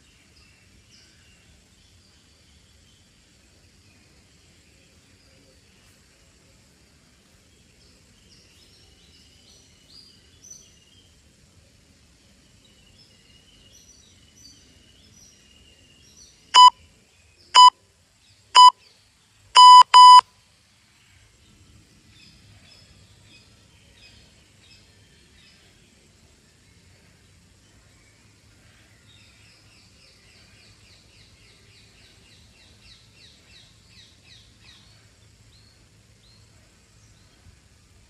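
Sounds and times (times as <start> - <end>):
birds chirping faintly: 0.0 - 38.0
timer beeps: 16.6 - 16.8, 18.6 - 18.8, 19.6 - 20.2.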